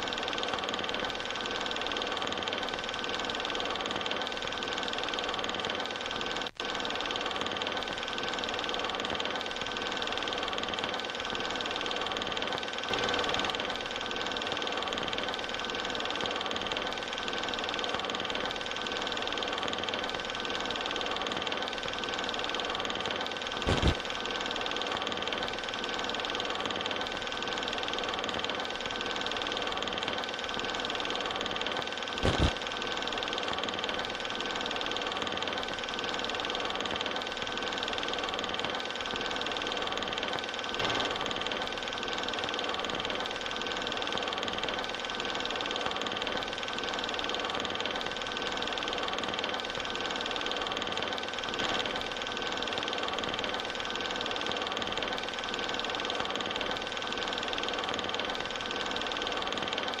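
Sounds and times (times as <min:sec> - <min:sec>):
mechanical hum with held tones: 0:00.0 - 1:00.0
sharp click: 0:23.6 - 0:24.1, 0:32.2 - 0:32.6.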